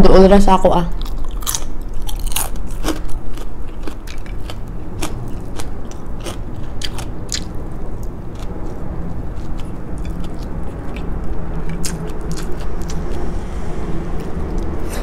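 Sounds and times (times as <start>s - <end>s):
person chewing and lip smacking: 1.0s - 8.8s, 9.4s - 13.3s.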